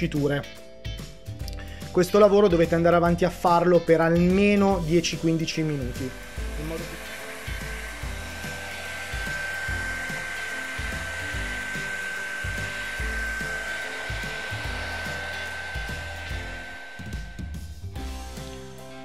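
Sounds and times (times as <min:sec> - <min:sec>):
hair dryer blowing: 0:04.6 - 0:19.0.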